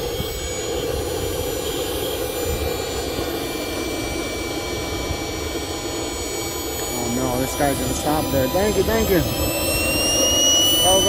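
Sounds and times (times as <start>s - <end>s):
turbojet engines whining: 0.0s - 11.0s.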